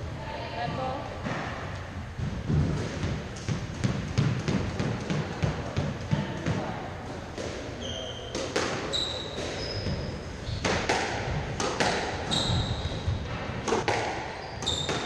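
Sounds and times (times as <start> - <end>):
squash ball hits: 1.2 - 15.0
shoes squeaking on wooden floor: 7.7 - 10.7, 12.2 - 13.4, 14.3 - 15.0.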